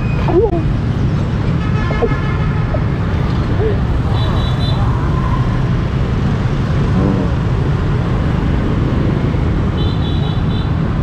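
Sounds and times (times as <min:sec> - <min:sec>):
rumble of passing vehicles: 0:00.0 - 0:11.0.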